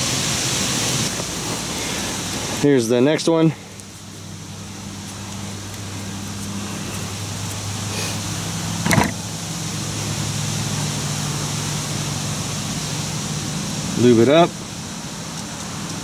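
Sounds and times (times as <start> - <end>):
vehicle engine humming: 0.0 - 16.0
sharp knock: 8.8 - 9.2.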